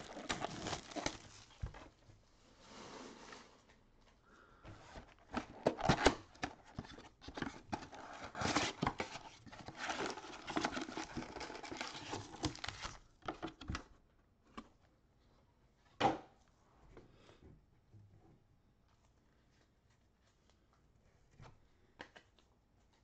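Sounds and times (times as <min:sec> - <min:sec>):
cardboard and wrappers crackling: 0:00.0 - 0:02.0, 0:05.1 - 0:13.7.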